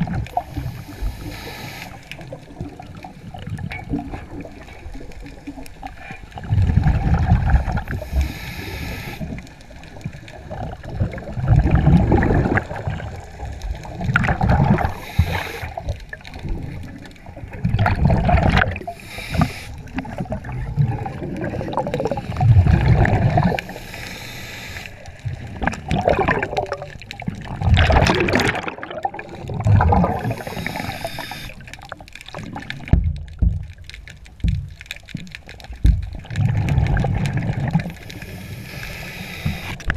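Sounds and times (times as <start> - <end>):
exhaled bubbles gurgling: 0.0 - 39.9
regulator inhale hiss: 0.4 - 2.3, 7.8 - 9.6, 14.8 - 16.0, 18.8 - 20.0, 21.6 - 22.6, 23.4 - 25.4, 29.3 - 31.8, 37.8 - 39.9.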